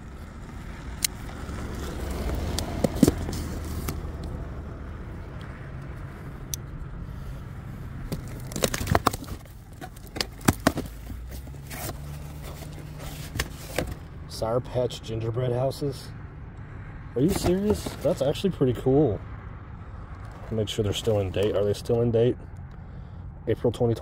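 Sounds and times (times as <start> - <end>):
low steady rumble: 0.0 - 24.0
cardboard flaps crackling: 2.2 - 4.0, 8.1 - 14.0, 17.2 - 18.3.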